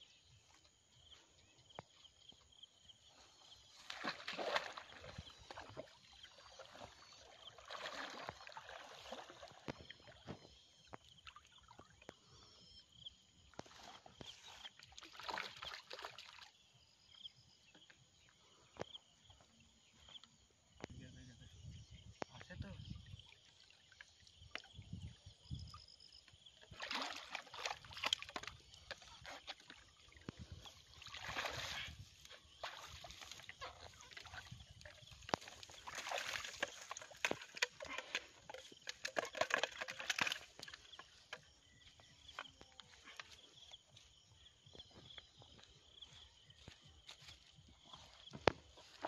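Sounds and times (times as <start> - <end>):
water sloshing and splashing: 3.4 - 12.0, 13.5 - 16.6, 23.0 - 44.3.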